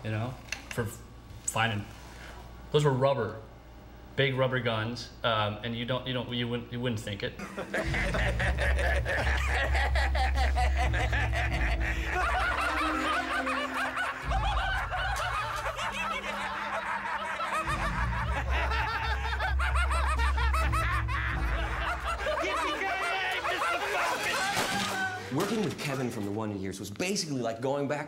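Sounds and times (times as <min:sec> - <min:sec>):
background music with low bass: 0:07.4 - 0:22.8
men laughing: 0:07.4 - 0:25.5.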